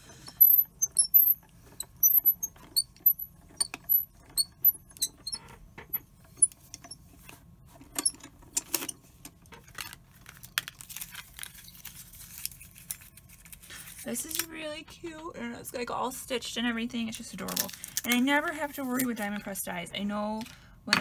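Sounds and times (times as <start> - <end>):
plates squeaking: 0.0 - 6.9.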